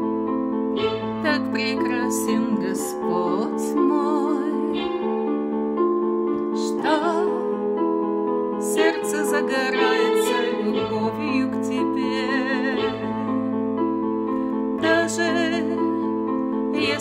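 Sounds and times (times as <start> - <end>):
sustained keyboard accompaniment: 0.0 - 17.0
woman singing with vibrato: 1.2 - 5.0, 6.6 - 7.6, 8.6 - 13.2, 14.8 - 16.1, 16.8 - 17.0.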